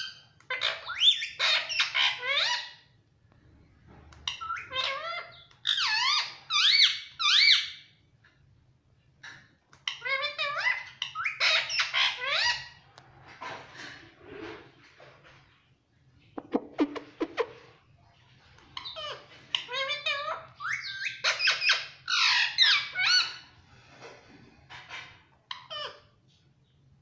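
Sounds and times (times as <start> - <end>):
parakeet squeaky calls: 0.0 - 2.9, 4.2 - 7.9, 9.9 - 12.8, 18.7 - 23.5, 25.5 - 26.1.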